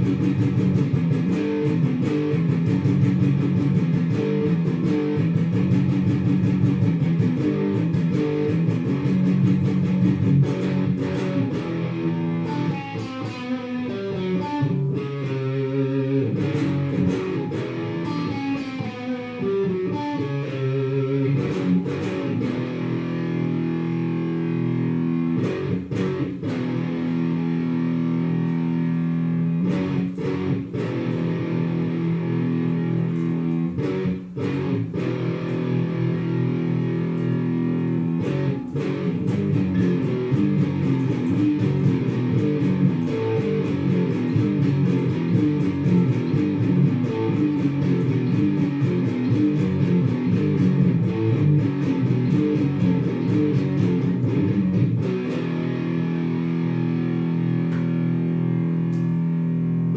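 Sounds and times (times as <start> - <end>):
heavy rock music: 0.0 - 58.8.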